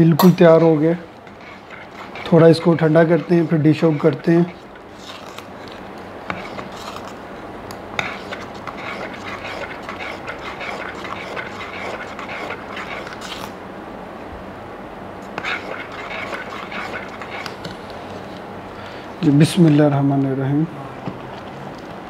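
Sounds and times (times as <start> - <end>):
spoon scraping metal pot: 0.3 - 5.3, 8.0 - 13.5, 15.4 - 17.7.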